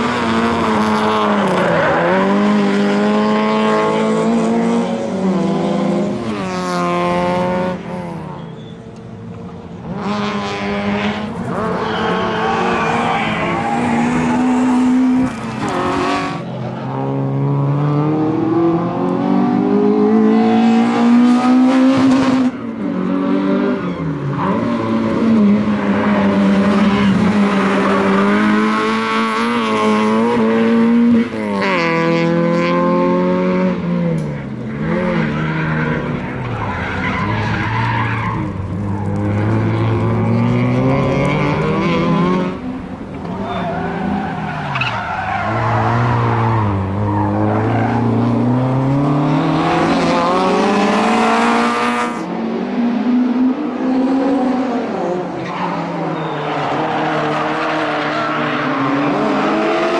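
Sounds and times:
tyres squealing on asphalt: 1.0 - 2.8, 8.0 - 9.0, 10.7 - 16.8, 34.8 - 48.7, 55.3 - 59.8
rally car engine revving hard: 9.8 - 36.4, 38.3 - 42.7, 45.3 - 56.0, 56.7 - 59.9.

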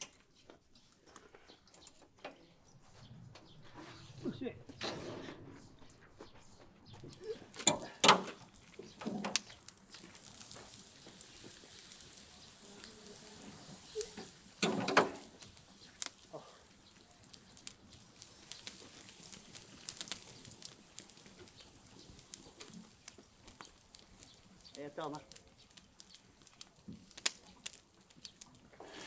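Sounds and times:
fire crackling: 6.8 - 29.0.

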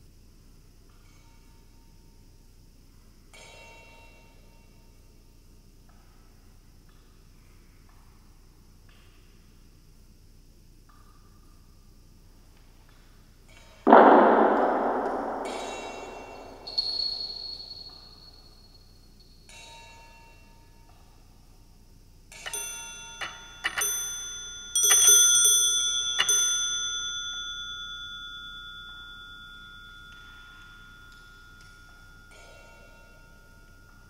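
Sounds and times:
metal dome bells ringing: 13.9 - 18.4, 22.5 - 34.0.

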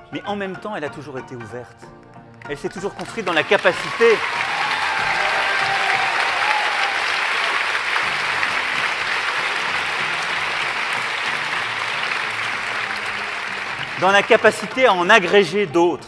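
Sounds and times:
crowd applauding: 2.8 - 15.3.

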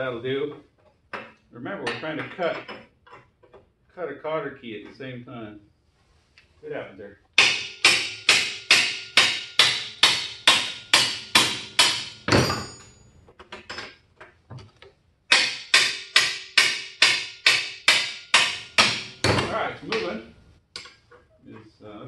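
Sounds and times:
hammer striking metal wrench: 7.4 - 13.0, 15.3 - 20.2.

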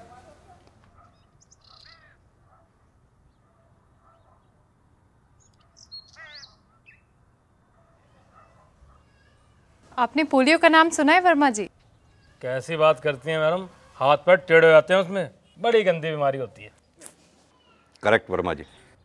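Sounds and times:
bird chirps and calls: 1.0 - 2.2, 5.4 - 7.1, 11.7 - 12.4.

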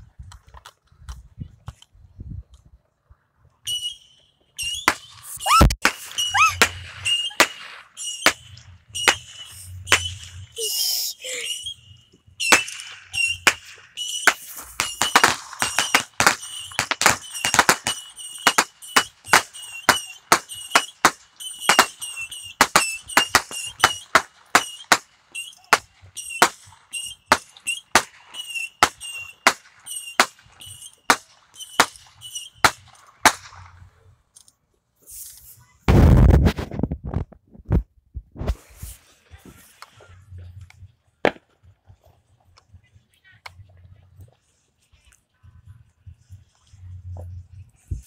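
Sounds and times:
firecrackers popping: 4.6 - 10.8, 11.4 - 34.1, 35.1 - 42.7
microphone handling rumble: 35.6 - 40.9.

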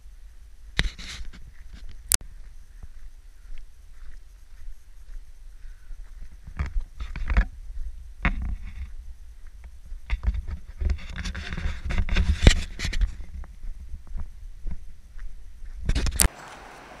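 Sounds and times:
footsteps crunching on gravel: 0.8 - 16.4
camera handling rumble and knocks: 6.5 - 7.5, 8.2 - 9.0, 10.0 - 13.5, 15.8 - 16.3.

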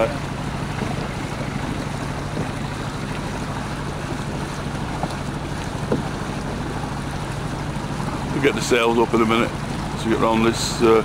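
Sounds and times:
wind on microphone: 0.0 - 10.1
boat engine droning: 0.0 - 11.0
water noise: 0.0 - 11.0
faint small knocks: 4.9 - 6.8.

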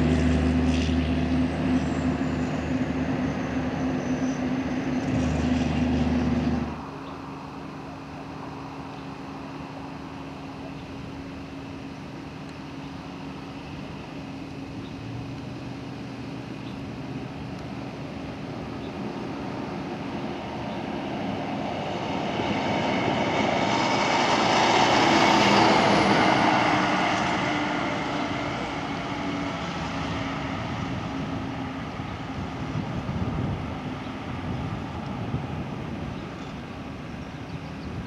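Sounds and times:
vehicle driving past: 0.0 - 7.0, 18.6 - 32.8.

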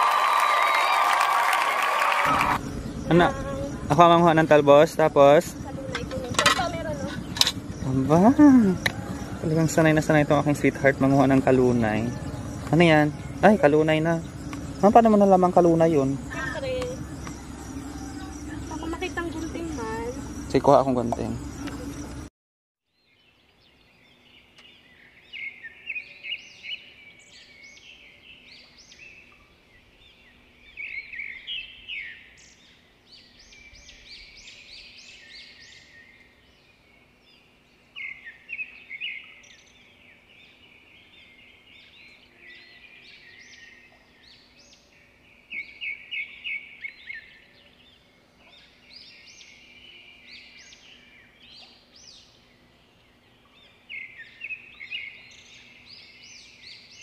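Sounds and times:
birds chirping: 0.0 - 22.3, 23.0 - 57.0
faint steady hum: 2.2 - 22.3.

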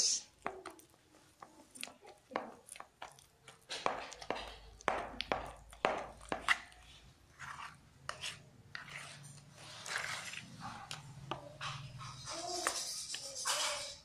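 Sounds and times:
dough slapping in plastic bowl: 0.4 - 8.4.

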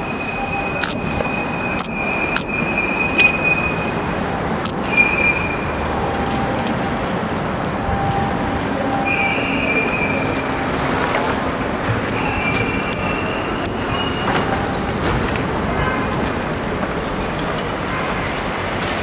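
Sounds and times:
street traffic: 0.0 - 19.0
sharp clicks: 0.8 - 1.0, 1.8 - 2.5.

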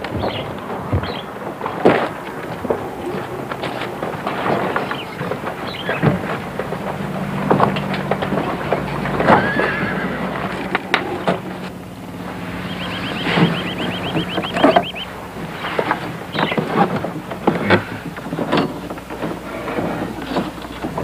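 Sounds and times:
horse whinny: 9.2 - 11.4.

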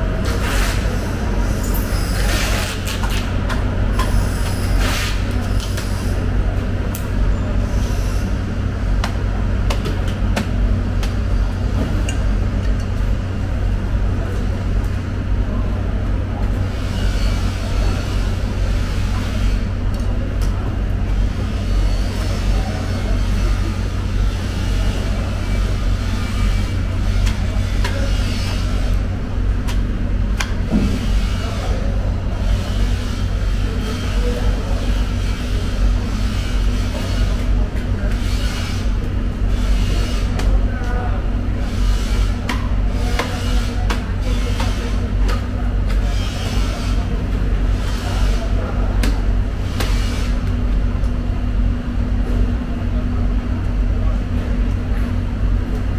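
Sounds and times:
low mechanical hum: 0.0 - 55.9.

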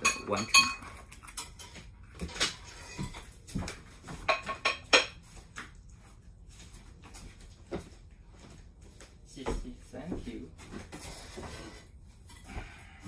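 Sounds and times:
dishes and utensils clinking: 0.0 - 3.4, 4.1 - 5.3.

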